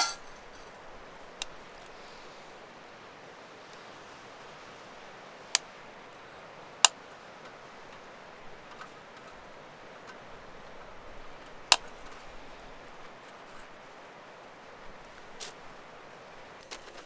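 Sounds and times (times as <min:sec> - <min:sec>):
faint hiss: 0:00.0 - 0:17.0.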